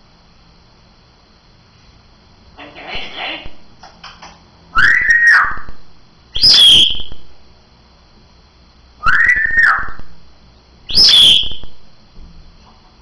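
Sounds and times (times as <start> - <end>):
harsh high parrot call: 2.6 - 3.6, 4.8 - 5.7, 6.4 - 7.2, 9.0 - 10.0, 10.9 - 11.7
parrot whistling: 4.8 - 5.7, 6.4 - 7.2, 9.0 - 10.0, 10.9 - 11.7.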